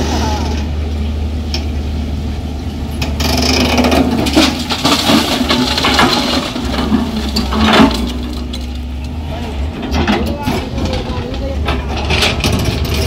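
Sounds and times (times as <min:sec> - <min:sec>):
rocks clattering on metal: 0:03.0 - 0:08.9.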